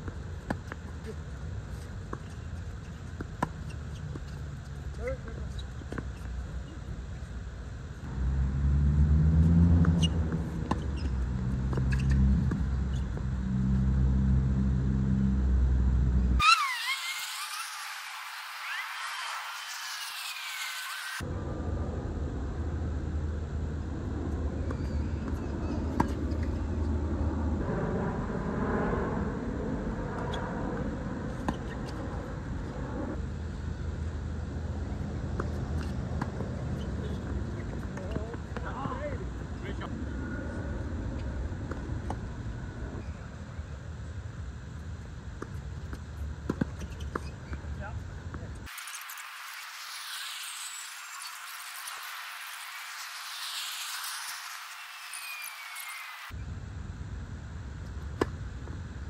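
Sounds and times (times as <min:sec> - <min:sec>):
vehicle engine droning: 0:08.0 - 0:16.4
steady low rumble: 0:09.4 - 0:16.4, 0:21.2 - 0:46.5.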